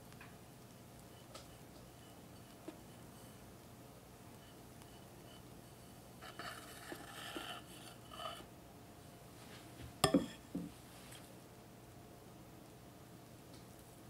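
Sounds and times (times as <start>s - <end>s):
spatula scraping cream: 0.7s - 3.5s, 4.2s - 8.5s.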